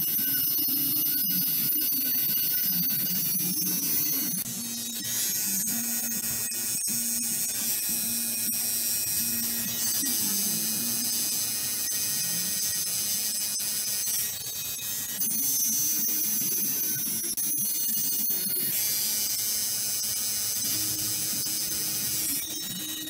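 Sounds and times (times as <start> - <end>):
tattoo machine buzzing: 0.0 - 23.0.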